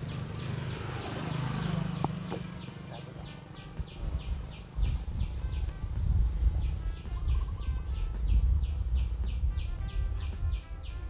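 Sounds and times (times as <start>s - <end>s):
motorcycle passing: 0.0s - 7.6s
high repeating chirping call: 1.8s - 5.4s
low rumbling thumps: 2.0s - 10.6s.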